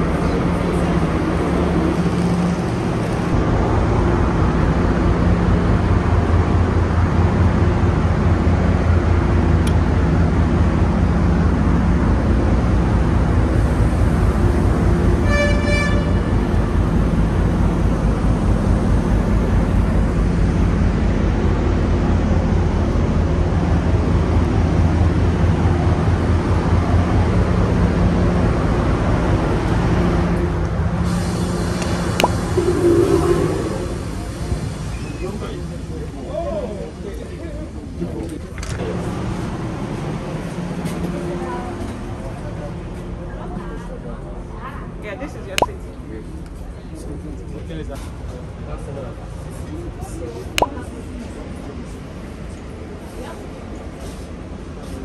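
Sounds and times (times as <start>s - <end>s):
train diesel engine idling: 0.0s - 38.2s
high train horn toot: 15.2s - 16.6s.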